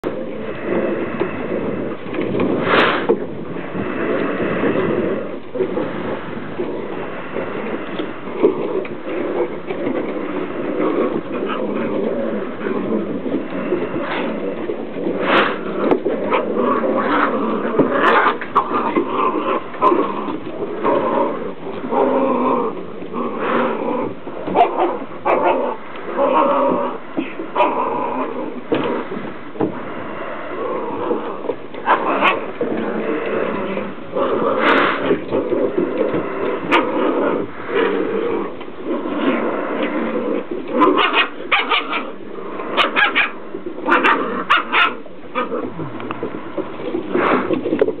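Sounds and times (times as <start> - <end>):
puppies growling and yipping: 7.6 - 48.0
puppies yapping: 40.8 - 42.1, 42.8 - 45.6.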